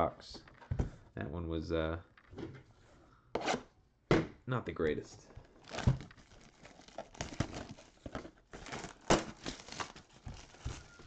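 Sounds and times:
plastic wrap crinkling and tearing: 0:05.4 - 0:11.0.

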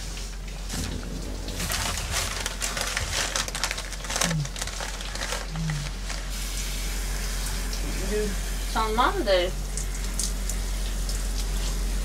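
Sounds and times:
crackly bursts: 0:00.7 - 0:06.4
low falling hum: 0:00.7 - 0:06.4
newspaper rustling and crumpling: 0:00.7 - 0:06.4.

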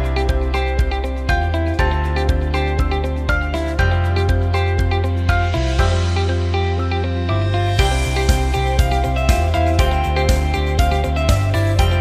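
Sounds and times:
held bass: 0:00.0 - 0:12.0
plucked notes: 0:00.0 - 0:12.0.

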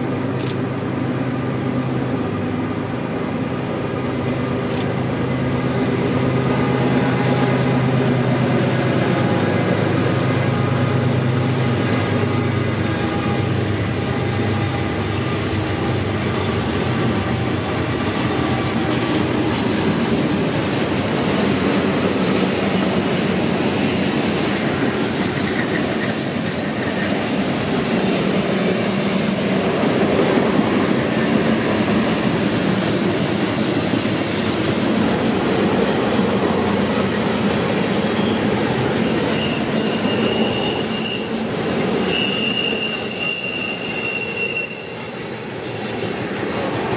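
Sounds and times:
locomotive engine humming: 0:00.0 - 0:23.5
train cars rumbling by: 0:00.0 - 0:46.9
wheel squeals: 0:18.1 - 0:20.2, 0:24.5 - 0:30.1, 0:34.3 - 0:35.4, 0:37.6 - 0:46.8.

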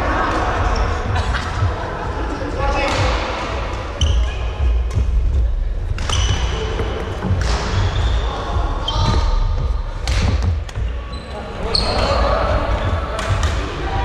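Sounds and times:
shoes squeaking on court: 0:06.0 - 0:09.4, 0:10.7 - 0:13.4.

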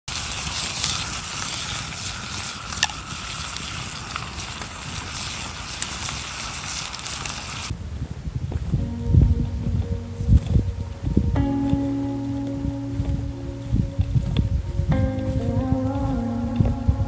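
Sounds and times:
wood fire hissing and crackling: 0:00.0 - 0:08.7
low thumps: 0:07.8 - 0:17.0.

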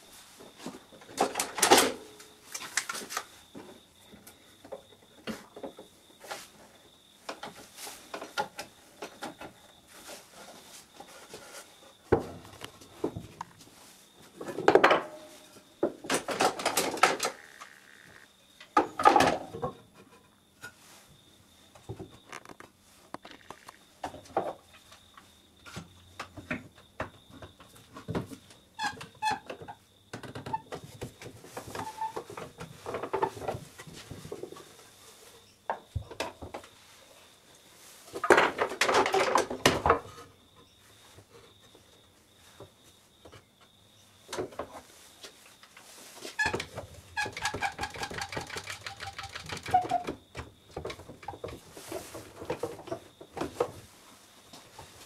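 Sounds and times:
wood knocking and scraping: 0:46.2 - 0:53.9.

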